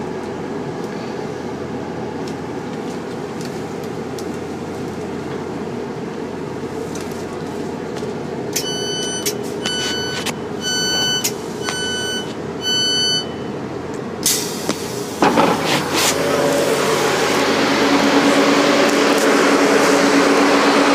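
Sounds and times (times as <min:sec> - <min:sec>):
standing train hum: 0:00.0 - 0:20.9
train door warning beeps: 0:08.5 - 0:13.6.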